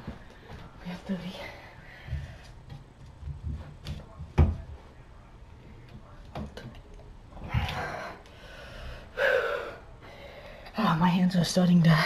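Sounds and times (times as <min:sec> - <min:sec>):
man breathing hard: 0:07.5 - 0:10.7.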